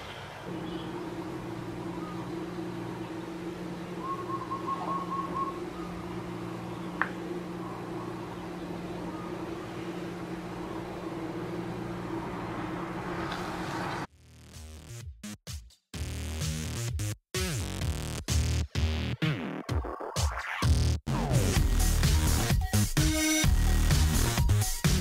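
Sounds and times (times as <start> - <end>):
low mechanical hum: 0.1 - 14.1
warbling whistle-like tone: 3.9 - 6.7.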